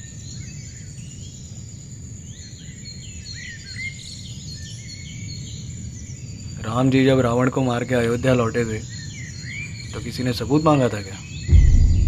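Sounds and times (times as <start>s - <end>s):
high insect drone: 0.0s - 12.0s
low background rumble: 11.5s - 12.0s.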